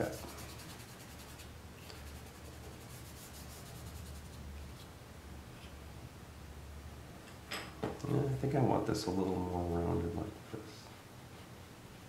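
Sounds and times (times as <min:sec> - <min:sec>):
fingertip rubbing on paper: 0:00.0 - 0:04.9.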